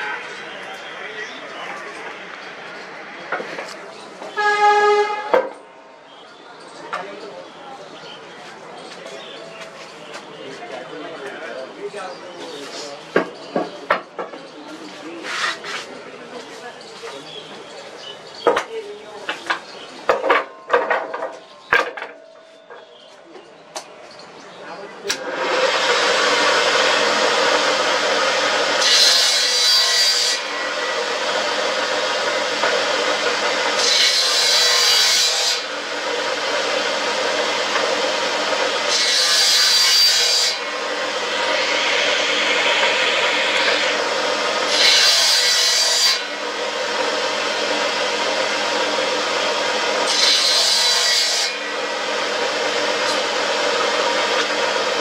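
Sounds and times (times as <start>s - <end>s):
table saw running: 25.1s - 55.0s
saw blade rasping through wood: 25.2s - 55.0s.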